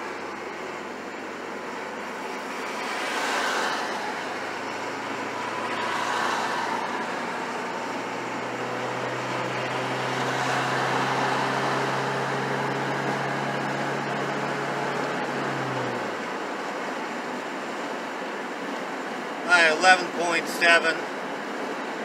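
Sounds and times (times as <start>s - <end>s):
truck engine revving hard: 0.0s - 16.4s
road and wind noise: 0.0s - 22.0s.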